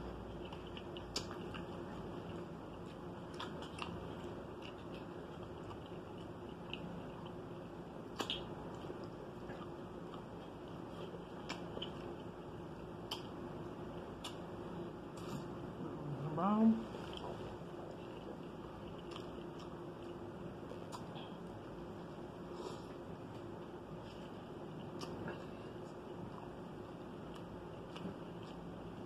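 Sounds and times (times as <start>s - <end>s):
faint steady hum: 0.0s - 29.0s
person chewing and biting meat: 0.1s - 15.7s, 17.0s - 29.0s
wet mouth clicks: 0.7s - 1.8s, 8.1s - 8.5s, 13.1s - 13.3s.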